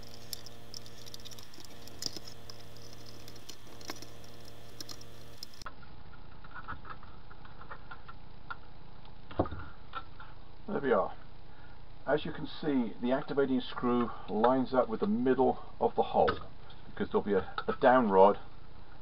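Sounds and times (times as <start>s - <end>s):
screwdriver and screws clicking: 0.0s - 5.7s
steady low hum: 0.0s - 5.7s.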